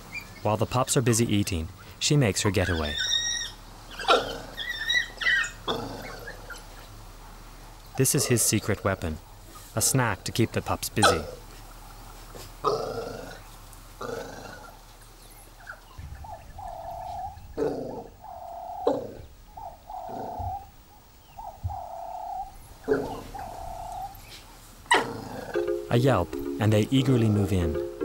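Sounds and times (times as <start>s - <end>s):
wild dogs whining squeals: 2.6s - 6.7s, 16.4s - 25.6s.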